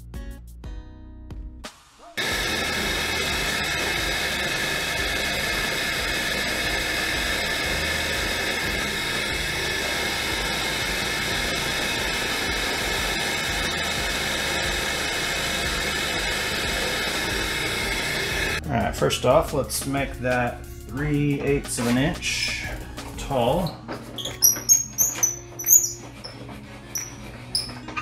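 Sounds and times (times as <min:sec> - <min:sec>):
drill press boring into wood: 0:02.2 - 0:18.6, 0:24.3 - 0:26.2.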